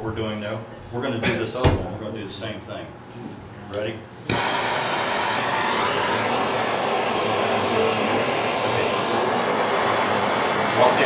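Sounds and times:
gas torch hissing: 0:04.3 - 0:11.0.

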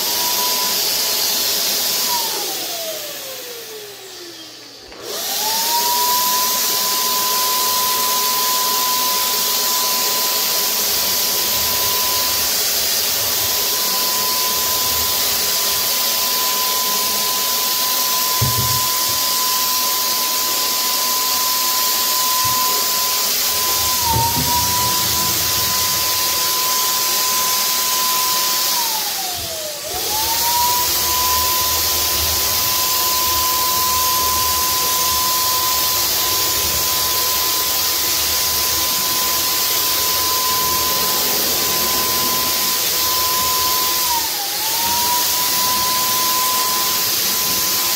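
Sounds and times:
electric paint sprayer whine: 0:00.0 - 0:47.9
rushing air hiss: 0:40.0 - 0:44.0.

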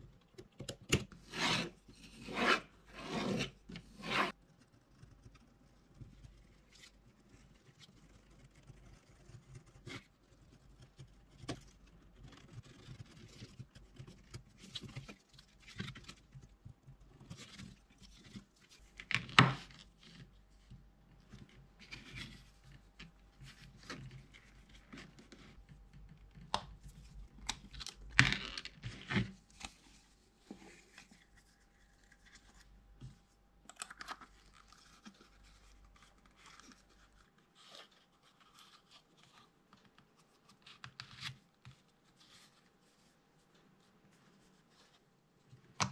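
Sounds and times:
tool scratching leather: 0:01.3 - 0:04.4.

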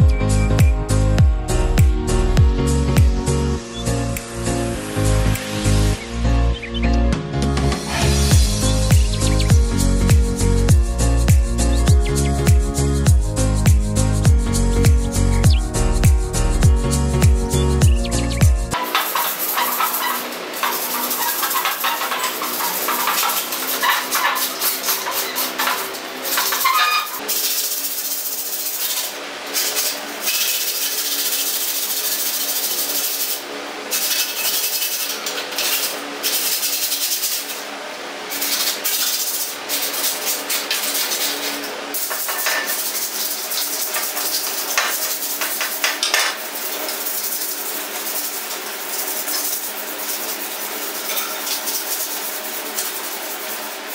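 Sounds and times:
sandpaper scratching on metal: 0:18.0 - 0:37.7, 0:38.3 - 0:53.9.

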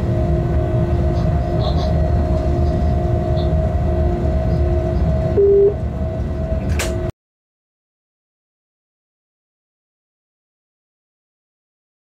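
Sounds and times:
train cab rumble and hum: 0:00.0 - 0:07.1
electronic beep: 0:05.4 - 0:05.8.

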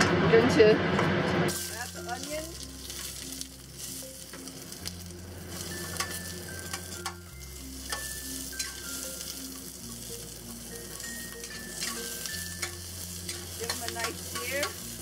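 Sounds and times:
onion sizzling in oil: 0:01.5 - 0:15.0
spatula scraping and tapping pan: 0:05.8 - 0:07.2, 0:11.3 - 0:14.9.

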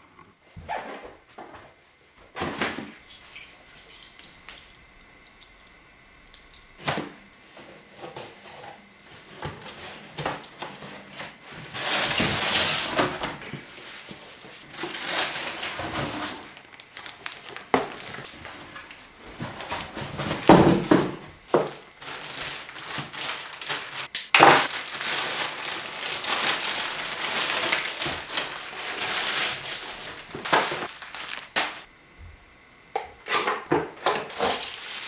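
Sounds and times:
cardboard box rustling and scraping: 0:10.8 - 0:16.6
cardboard tearing: 0:14.7 - 0:31.9.

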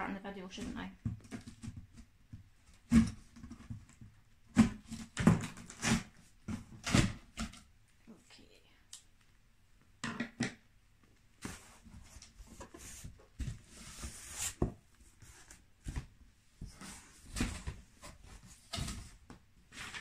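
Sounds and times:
cardboard scraping rustle: 0:11.4 - 0:16.0.

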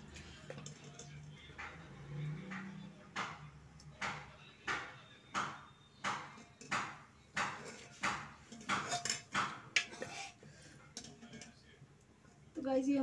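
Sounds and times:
spoon scraping in metal pot: 0:07.5 - 0:11.6.

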